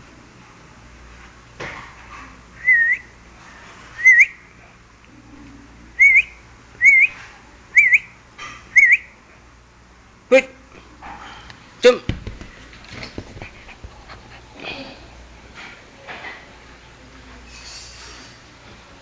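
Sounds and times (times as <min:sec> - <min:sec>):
person whistling short notes: 0:02.6 - 0:03.1, 0:04.0 - 0:04.4, 0:06.0 - 0:07.2.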